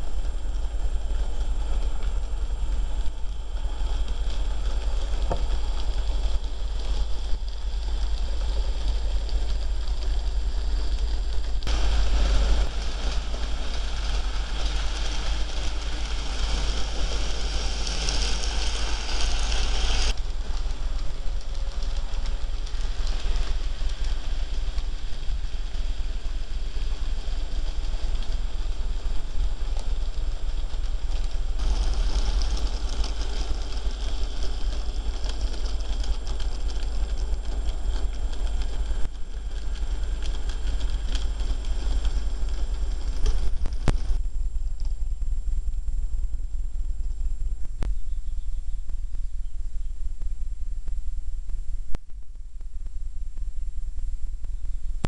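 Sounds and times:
low hum: 0.0 - 55.0
small wheels clattering on rail: 3.0 - 44.2.

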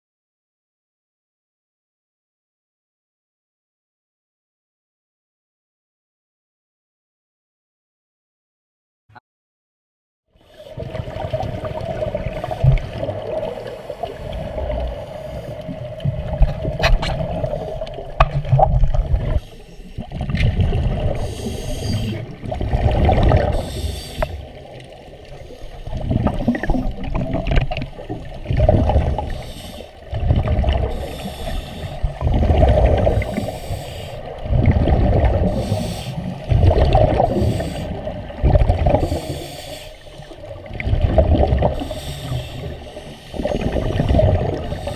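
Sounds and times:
muffled water sloshing underwater: 10.4 - 44.9.

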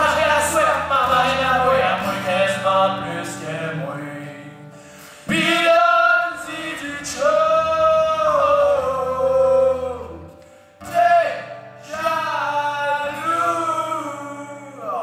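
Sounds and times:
acoustic guitar: 0.0 - 15.0
man singing country song: 0.0 - 15.0.

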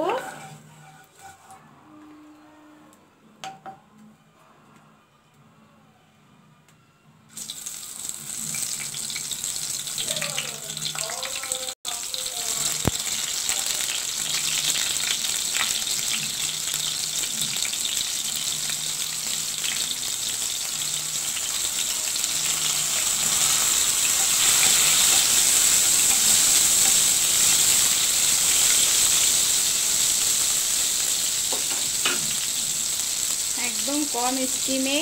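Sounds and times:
vegetables sizzling in hot oil: 7.3 - 35.0.

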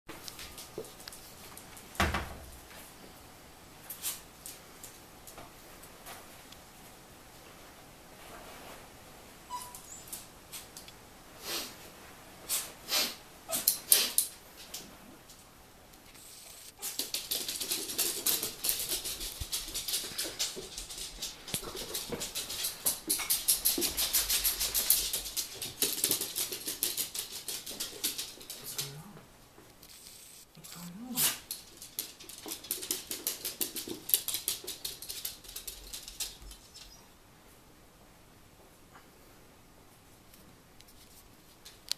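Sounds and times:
dog breathy bursts: 12.4 - 13.2
dog claws clicking on floor: 16.8 - 29.0, 31.2 - 36.9.

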